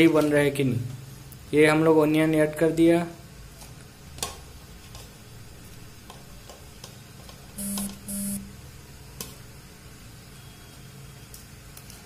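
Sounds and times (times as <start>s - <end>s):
short low buzzes with hiss: 7.6s - 8.5s.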